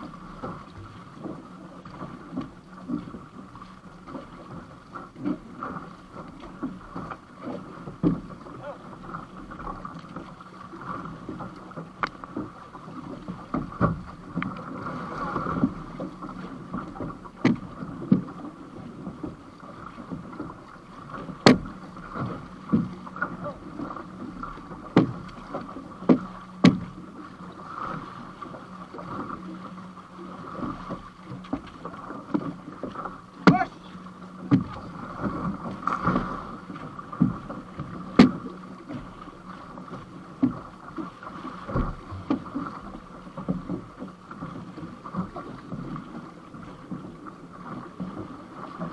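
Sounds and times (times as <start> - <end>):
water slapping against canoe hull: 0.0 - 48.9
sharp knocks and splashes: 6.4 - 8.8, 13.3 - 18.4, 21.1 - 27.0, 30.6 - 33.8, 34.4 - 39.2.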